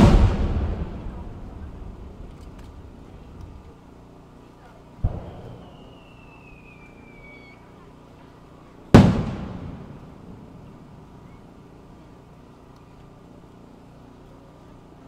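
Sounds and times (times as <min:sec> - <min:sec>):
sharp firework bang: 0:00.0 - 0:03.5, 0:05.0 - 0:06.2, 0:09.0 - 0:10.5.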